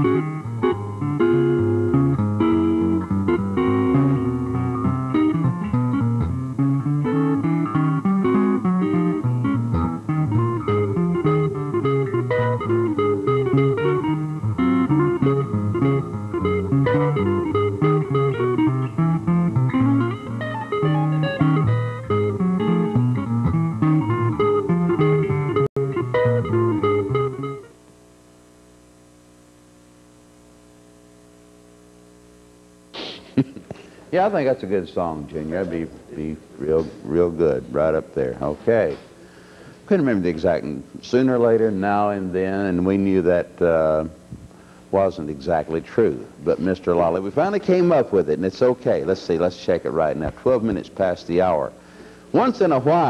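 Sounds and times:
instrumental guitar and bass music: 0.0 - 27.7.

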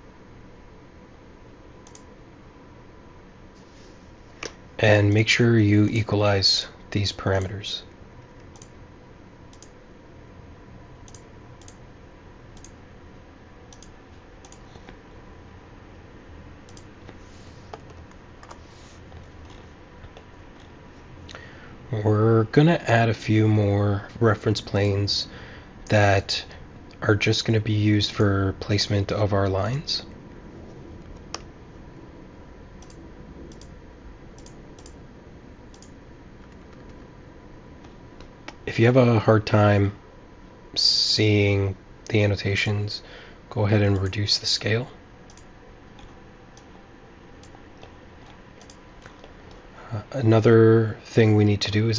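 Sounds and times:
faint steady hum: 0.0 - 51.9
steady low hiss: 0.0 - 51.9
computer mouse clicking: 1.8 - 2.1, 8.4 - 8.7, 9.5 - 9.8, 11.0 - 11.8, 12.6 - 12.8, 13.7 - 15.0, 16.7 - 16.9, 17.7 - 20.7, 32.8 - 33.7, 34.4 - 35.0, 35.7 - 37.1, 45.3 - 46.7, 47.4 - 49.6
mouse and keyboard clicking: 17.7 - 18.6.

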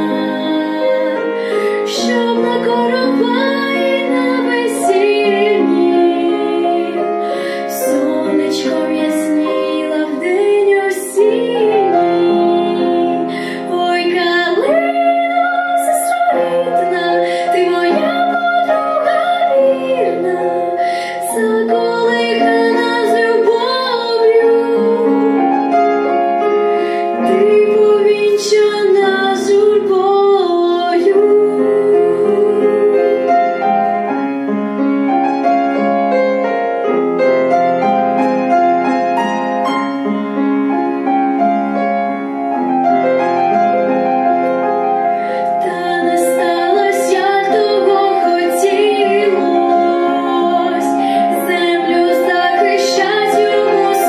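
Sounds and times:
girl singing with vibrato: 0.0 - 25.4, 27.1 - 33.3, 45.6 - 54.0
grand piano: 0.0 - 54.0.

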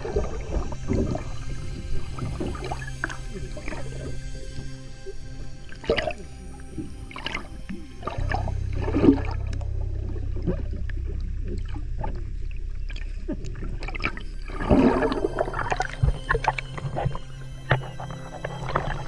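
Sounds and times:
underwater low rumble: 0.0 - 19.0
gurgling bubble bursts: 8.0 - 17.2.

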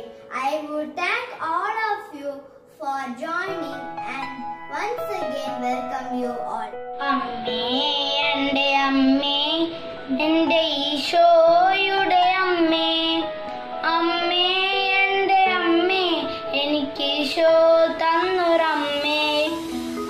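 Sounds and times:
boy singing: 6.5 - 19.7.

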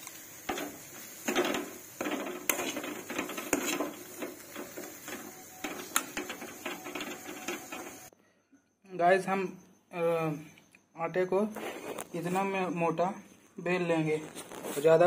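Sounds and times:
metal spoon scraping a pan: 0.4 - 8.1.

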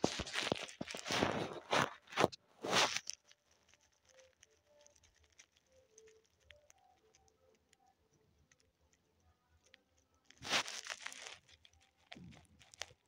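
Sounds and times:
yarn rustling: 0.0 - 6.5, 10.3 - 13.0.

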